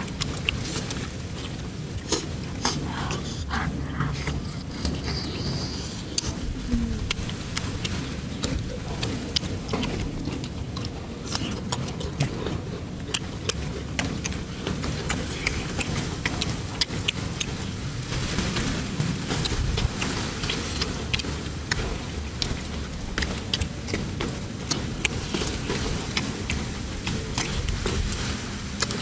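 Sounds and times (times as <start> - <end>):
chewing and tearing chicken: 0.0 - 29.0
low rumble: 1.0 - 10.9.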